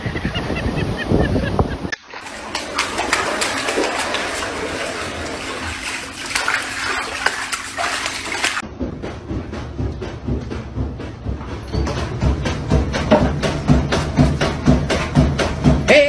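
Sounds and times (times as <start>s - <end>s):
water splashing over a floor: 2.0s - 8.6s.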